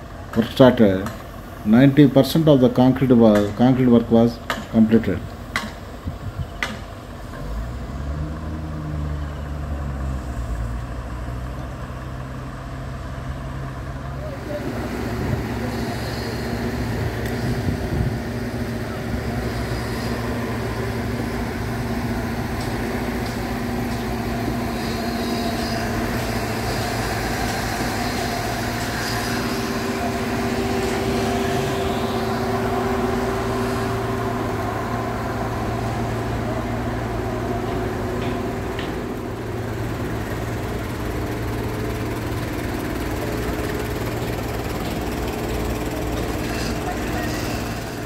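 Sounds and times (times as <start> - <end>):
heavy machinery engines humming: 0.0 - 48.0.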